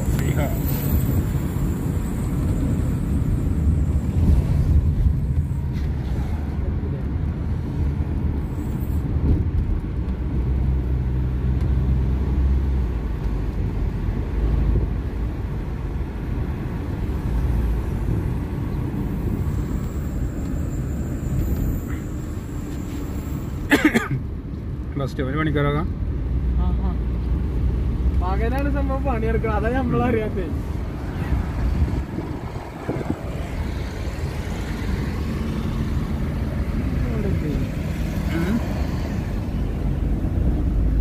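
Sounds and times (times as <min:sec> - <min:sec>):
car engine and tyre rumble: 0:00.0 - 0:41.0.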